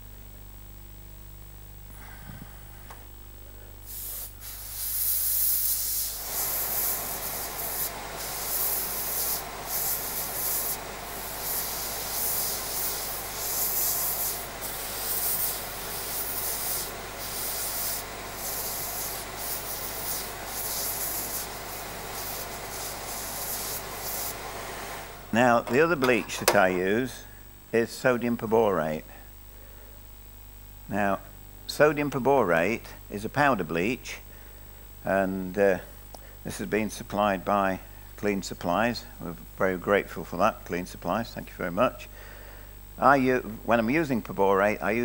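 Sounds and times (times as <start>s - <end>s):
steam gun hissing: 3.8s - 27.1s.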